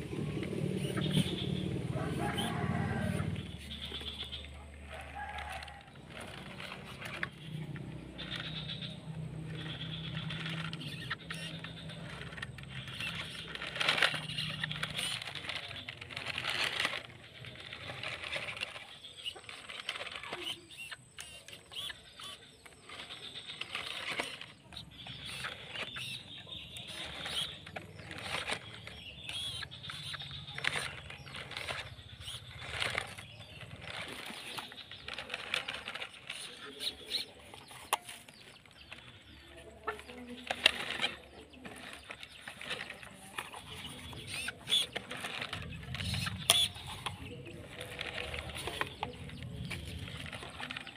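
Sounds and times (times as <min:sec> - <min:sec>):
electric motor whirring: 0:00.0 - 0:38.0
tyres crackling over soil and leaves: 0:00.0 - 0:50.9.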